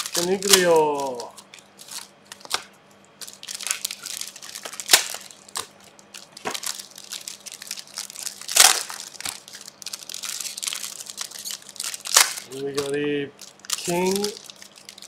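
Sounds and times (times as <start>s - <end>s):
card wrappers crinkling: 0.0s - 15.0s
wrapper crackles: 0.0s - 15.0s.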